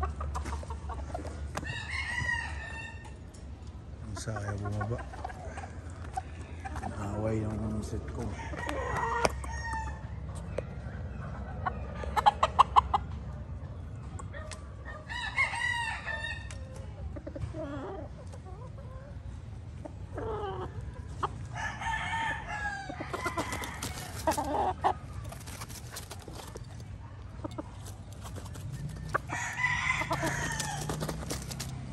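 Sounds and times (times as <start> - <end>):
chicken clucking: 0.0 - 31.9
rooster crowing: 1.6 - 3.2, 8.2 - 10.1, 15.0 - 16.5, 21.5 - 24.7, 28.8 - 31.5.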